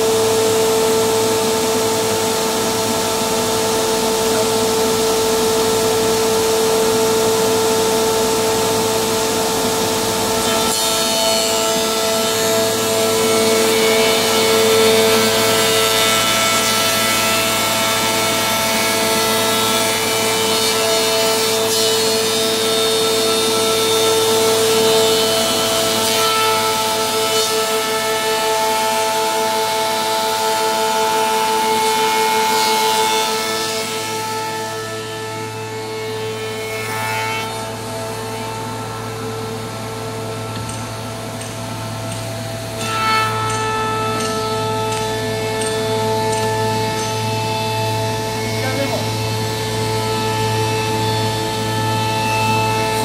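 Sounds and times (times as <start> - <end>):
planer whining: 0.0 - 53.0
wood cutting noise: 0.0 - 53.0.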